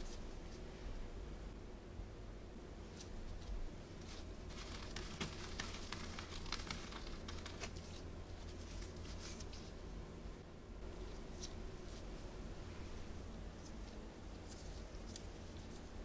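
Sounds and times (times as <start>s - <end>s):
cornflakes crackling and crunching: 3.4s - 9.5s.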